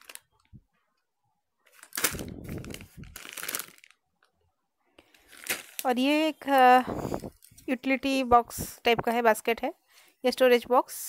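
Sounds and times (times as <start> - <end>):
plastic packet crinkling: 0.0 - 0.6, 1.6 - 4.3, 5.0 - 6.7.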